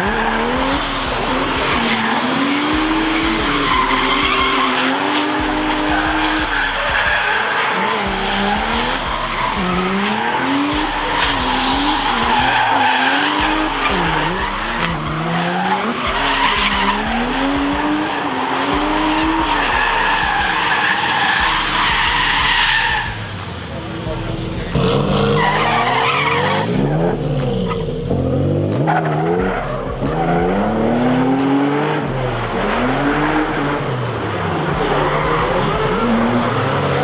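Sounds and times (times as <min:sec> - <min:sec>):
tyres screeching: 0:00.0 - 0:31.6
car engines revving: 0:00.0 - 0:37.0.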